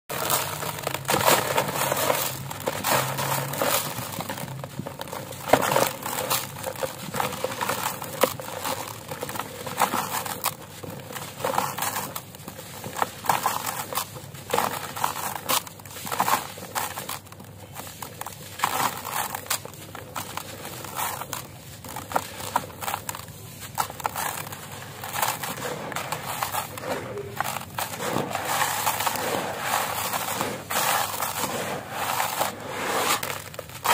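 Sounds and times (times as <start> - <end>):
hands crushing concrete: 0.1 - 33.9
grit pouring into plastic tub: 25.1 - 33.9.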